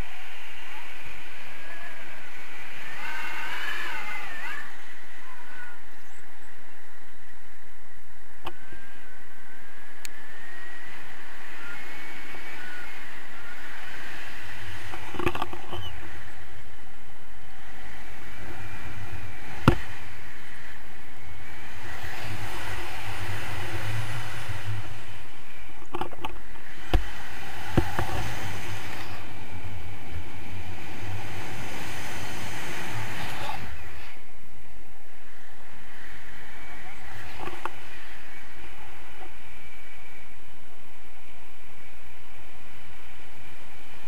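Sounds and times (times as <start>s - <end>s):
wind rushing over microphone: 0.0s - 44.0s
faint wavering whistle: 8.5s - 14.0s, 15.7s - 16.2s, 35.3s - 42.3s.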